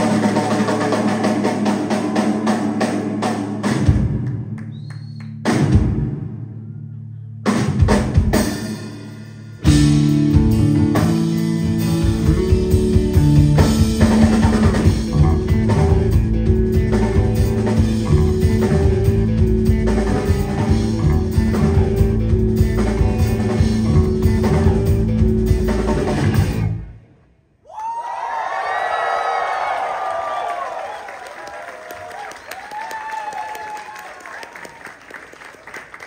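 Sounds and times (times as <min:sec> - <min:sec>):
drum kit: 0:00.0 - 0:06.5, 0:07.4 - 0:26.9
bass guitar: 0:00.0 - 0:27.1
electric guitar: 0:08.4 - 0:26.9.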